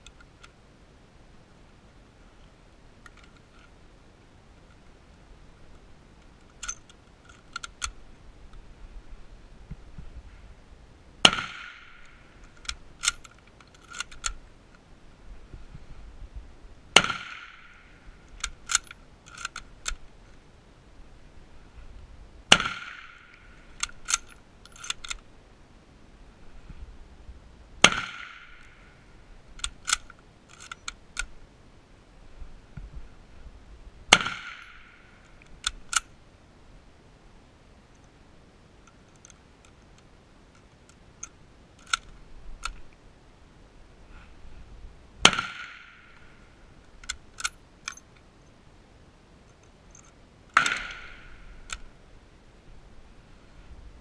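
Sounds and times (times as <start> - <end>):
rifle bolt metallic clicks: 3.0 - 3.7, 6.2 - 8.0, 11.2 - 14.8, 17.0 - 20.4, 22.5 - 25.2, 29.6 - 31.4, 34.1 - 36.1, 38.9 - 42.9, 45.2 - 48.3, 49.5 - 51.9
rifle shots: 11.2 - 12.1, 17.0 - 17.8, 22.5 - 23.3, 27.8 - 28.7, 34.1 - 35.0, 45.2 - 46.2, 50.6 - 51.4.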